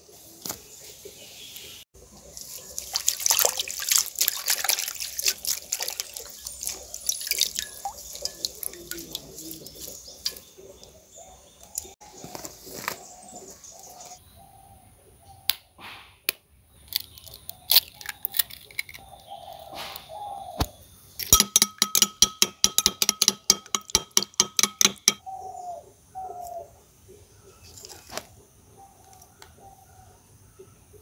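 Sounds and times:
doves cooing: 0:05.4 - 0:15.5, 0:19.0 - 0:20.7, 0:25.2 - 0:26.8
spoon beating egg in bowl: 0:21.3 - 0:25.2.

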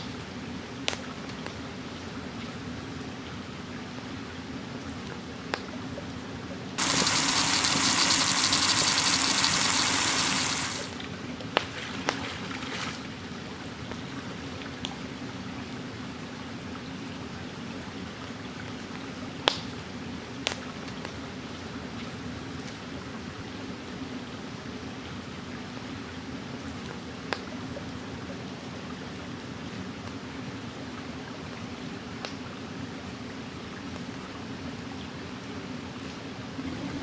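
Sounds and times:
stream trickling: 0:06.8 - 0:19.3.

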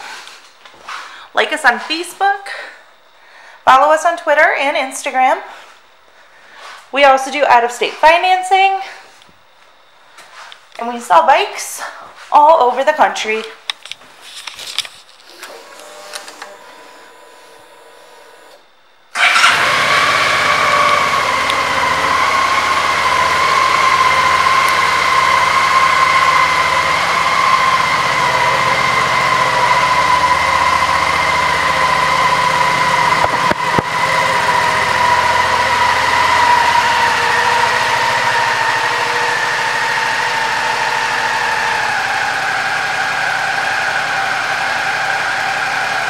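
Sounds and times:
motorcycle engine starting and idling: 0:17.7 - 0:46.0.

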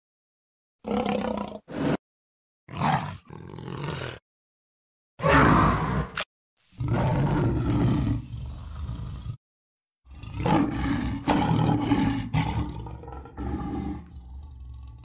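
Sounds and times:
big cat roaring: 0:00.8 - 0:02.0, 0:02.7 - 0:04.2, 0:05.2 - 0:06.2, 0:06.8 - 0:09.4, 0:10.1 - 0:15.0.

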